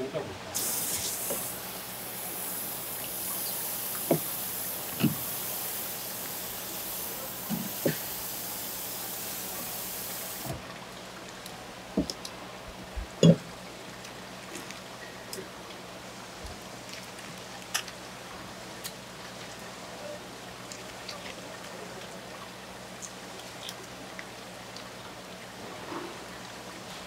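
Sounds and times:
running water hiss: 0.0 - 12.2.

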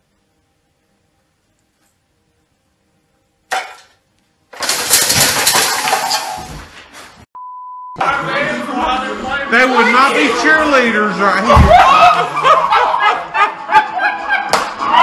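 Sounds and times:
metal screen crashing and clattering: 3.5 - 6.7
short steady beep: 7.4 - 8.0.

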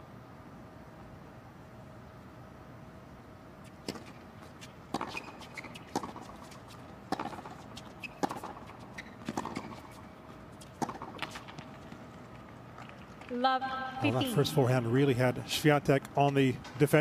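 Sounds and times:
tennis ball struck by rackets: 3.8 - 12.0
crowd and arena background: 10.7 - 17.0.

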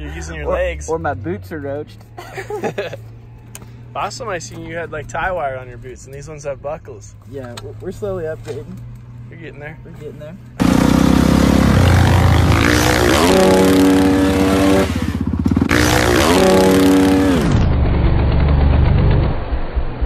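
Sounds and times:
dirt bike engine revving: 10.6 - 19.2.

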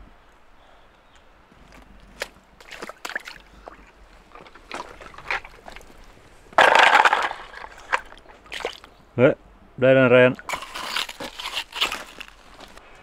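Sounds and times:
water splashing and sloshing: 1.3 - 9.0.

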